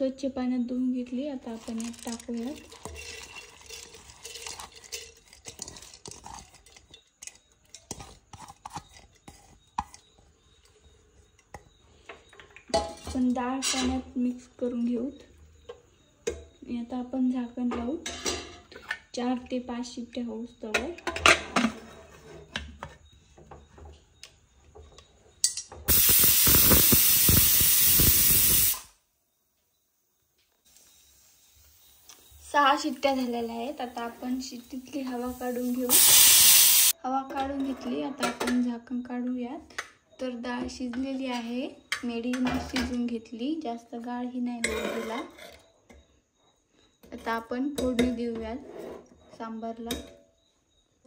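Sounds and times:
pressure cooker whistle hissing: 25.9 - 29.0, 34.0 - 37.0.

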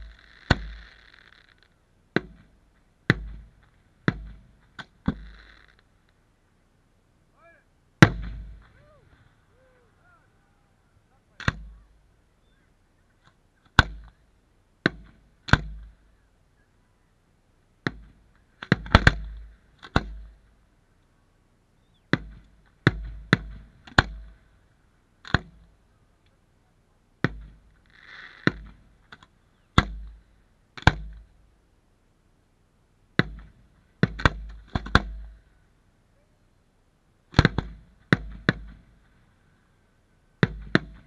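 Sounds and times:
fireworks bursting with booms: 0.0 - 5.8, 8.0 - 9.5.

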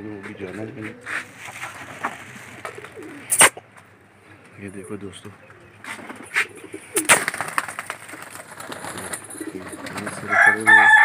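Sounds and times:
pigeons cooing: 2.3 - 11.0
rooster crowing: 10.2 - 11.0.

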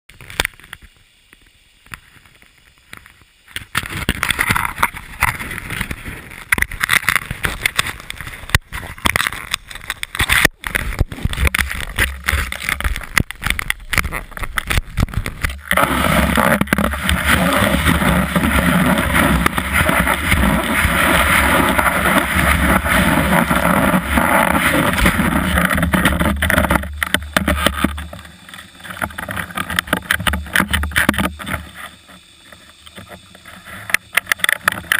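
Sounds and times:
snowboard scraping over snow: 15.2 - 29.6.

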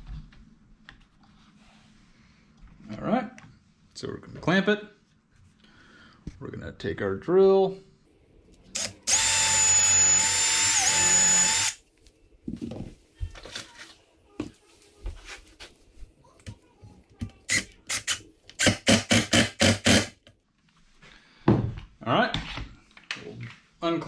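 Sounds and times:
cordless drill whining: 8.8 - 11.8.

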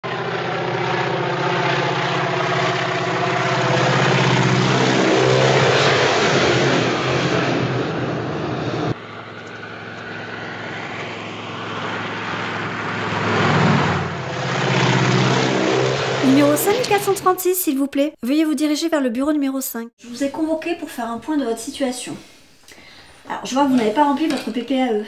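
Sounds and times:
propeller plane engine drone: 0.0 - 17.2.

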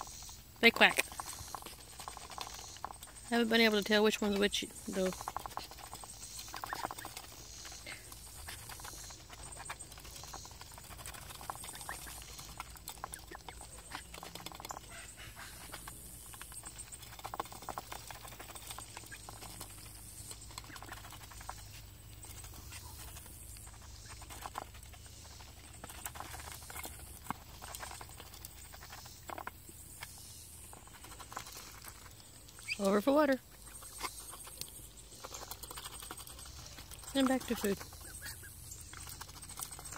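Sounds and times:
duck bills clicking in metal pan: 0.7 - 21.6.

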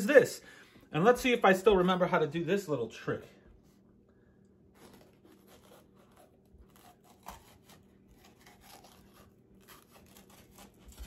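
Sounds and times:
knife slicing pepper: 4.8 - 11.0.

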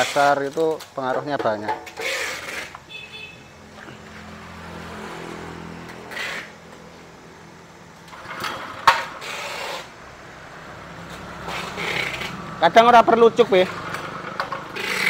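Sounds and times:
small petrol engine running: 11.4 - 15.0.

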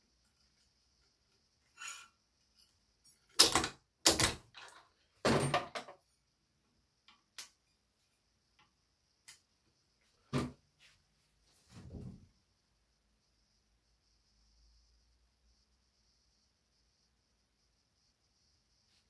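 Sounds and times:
tools knocking and clattering: 3.1 - 6.0.

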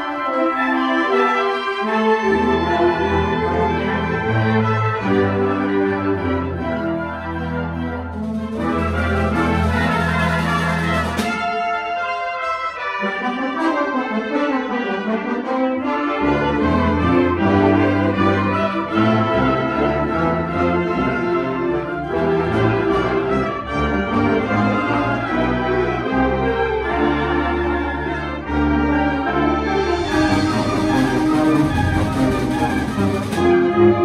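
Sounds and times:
low brass: 0.0 - 34.0
wind ensemble playing: 0.0 - 34.0.

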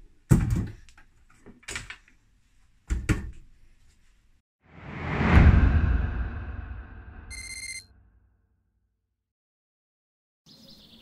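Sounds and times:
whoosh: 4.7 - 7.6.

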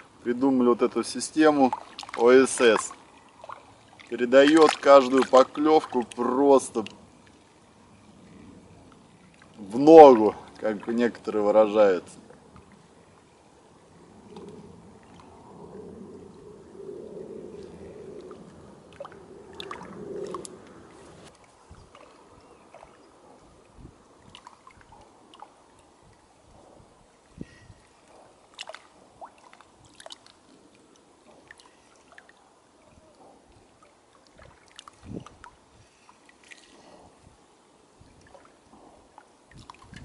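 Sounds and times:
small waves lapping against shore: 0.0 - 16.4, 17.0 - 40.0
short splashes and clicks: 1.5 - 7.4, 17.6 - 23.1, 24.2 - 25.9, 27.8 - 32.4, 33.5 - 37.0, 38.2 - 40.0.

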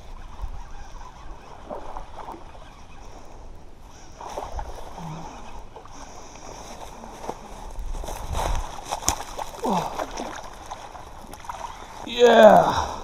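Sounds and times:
water splashing: 8.5 - 13.0.

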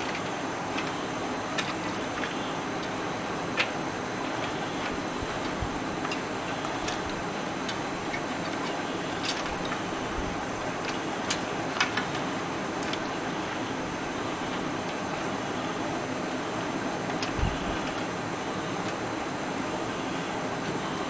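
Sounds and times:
cables tapping metal case: 0.0 - 13.2.

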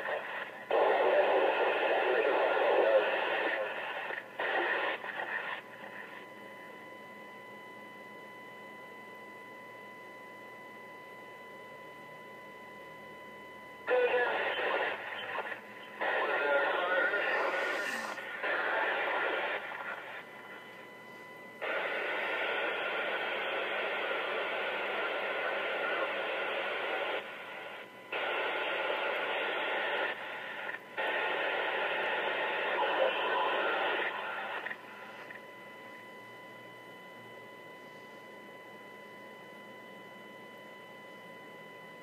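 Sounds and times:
radio static bursts: 0.0 - 6.2, 13.9 - 20.3, 21.6 - 27.3, 28.1 - 35.4.

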